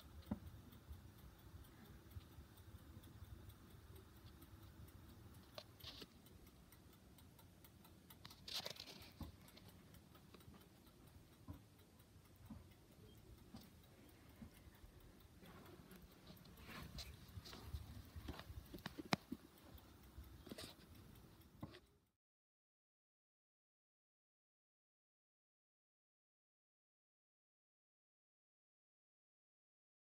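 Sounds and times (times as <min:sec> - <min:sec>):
light clicks: 0:00.0 - 0:21.9.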